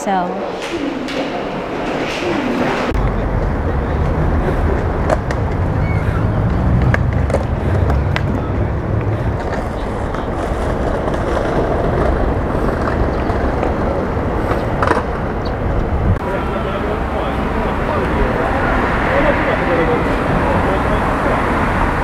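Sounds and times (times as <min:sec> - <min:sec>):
low city rumble: 0:00.0 - 0:22.0.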